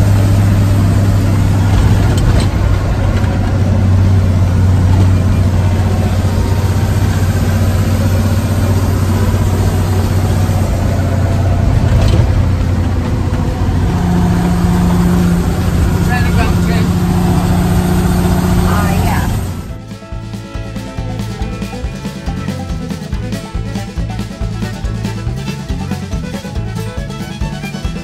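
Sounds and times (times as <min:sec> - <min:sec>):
truck engine humming: 0:00.0 - 0:28.0.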